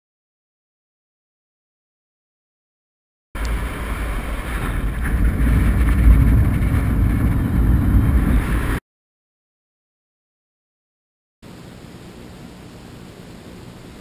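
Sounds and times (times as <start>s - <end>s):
wind buffeting microphone: 3.4s - 8.8s.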